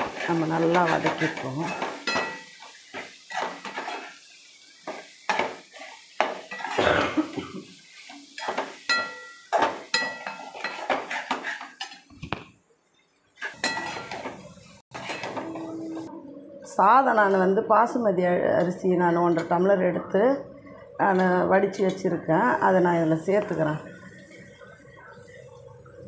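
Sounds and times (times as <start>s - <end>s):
metal spatula scraping a metal pan: 0.0s - 4.3s, 8.0s - 12.1s, 13.4s - 16.1s.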